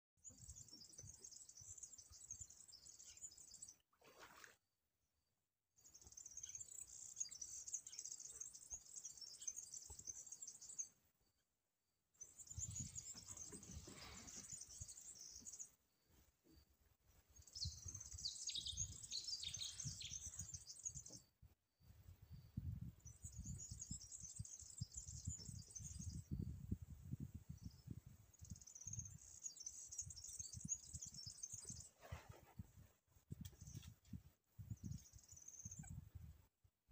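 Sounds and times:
flock of small birds chirping: 0.2s - 3.8s, 5.8s - 11.0s, 12.2s - 16.6s, 17.3s - 21.3s, 23.0s - 26.5s, 27.5s - 32.6s, 33.4s - 36.0s.

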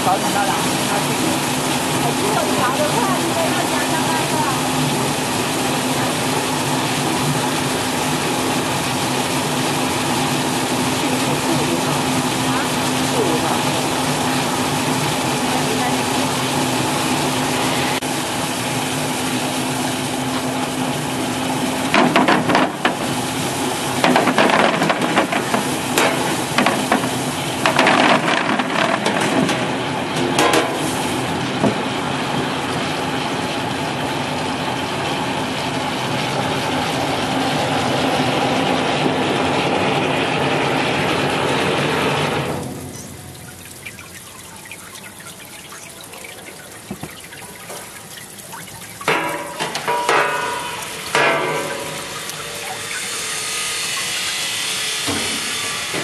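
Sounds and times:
water spray hissing: 50.6s - 56.0s.

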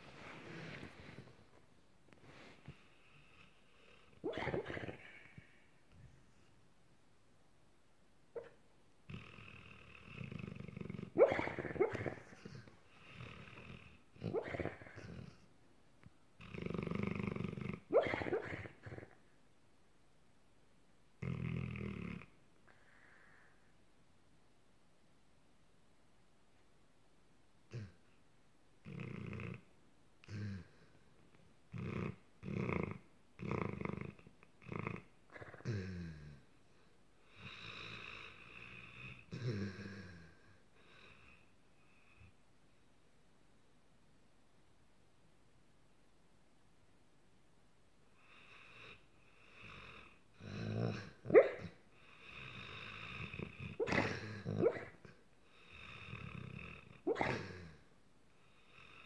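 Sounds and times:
dog making throaty noises in sleep: 0.0s - 6.5s, 8.4s - 15.5s, 16.4s - 19.3s, 21.2s - 22.4s, 27.7s - 28.2s, 28.8s - 42.4s, 48.2s - 57.9s.

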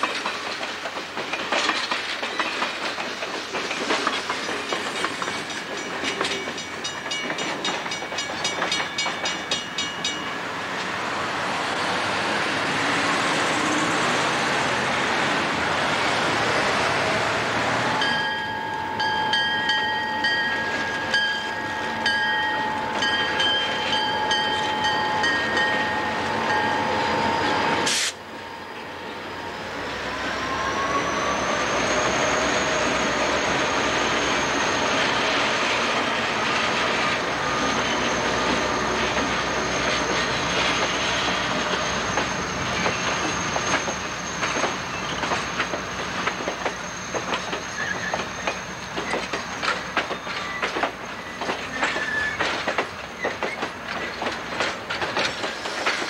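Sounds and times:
train wheels clacking over rail joints: 0.0s - 11.0s, 32.6s - 56.0s
wheel squeal: 37.0s - 54.3s.

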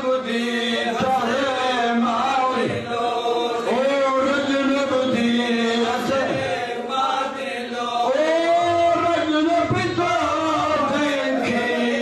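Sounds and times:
men chanting a mourning lament: 0.0s - 12.0s.

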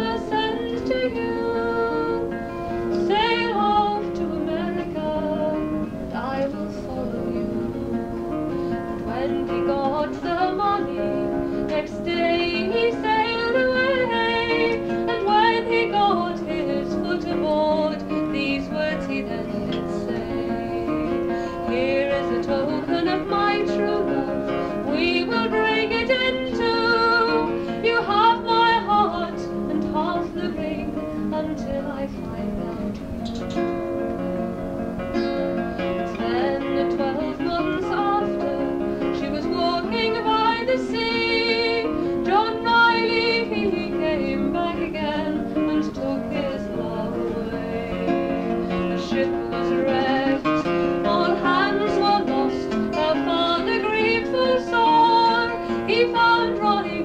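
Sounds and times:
acoustic guitar: 0.0s - 57.0s
woman singing folk ballad: 0.0s - 57.0s.

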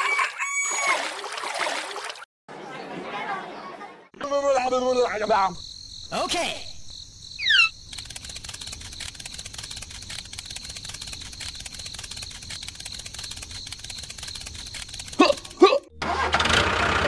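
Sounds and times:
insects chirping: 4.2s - 15.6s.

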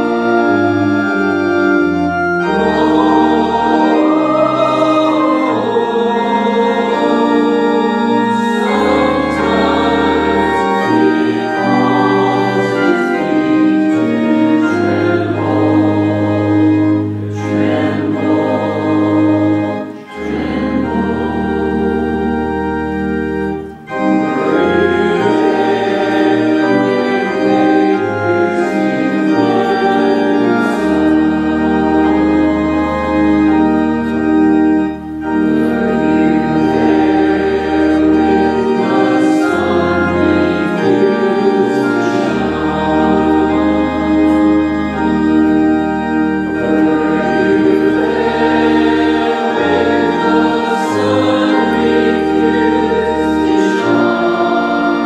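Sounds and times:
congregation singing a hymn: 0.0s - 55.0s
organ chords: 0.0s - 55.0s.

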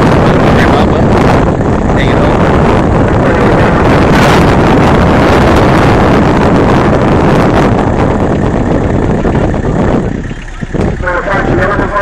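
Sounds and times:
car engine at high revs: 0.0s - 12.0s.

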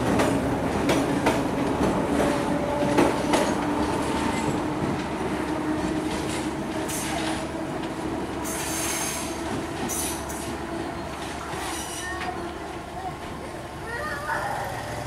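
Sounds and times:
train engines droning: 0.0s - 15.0s
train wheels squealing: 8.4s - 12.4s.

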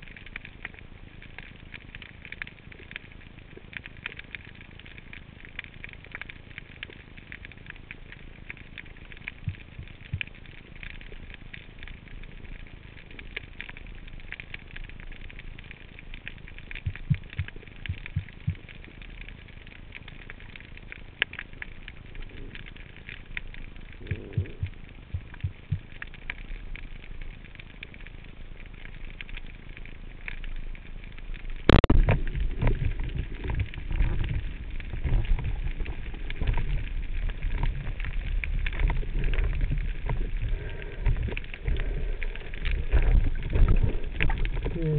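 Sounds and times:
underwater crackle of small clicks: 0.0s - 44.9s
water rushing against camera housing: 31.6s - 44.9s.

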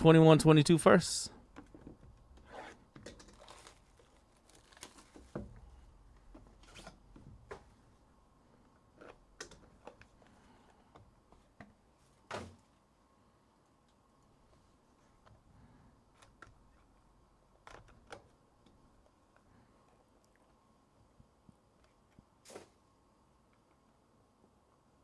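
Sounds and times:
clicks and rustling of small objects: 2.9s - 5.5s.

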